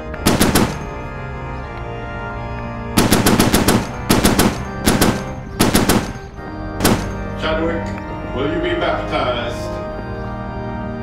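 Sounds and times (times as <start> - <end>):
church organ chords: 0.0 - 11.0
rapid gunfire bursts: 0.3 - 1.0, 3.0 - 7.2.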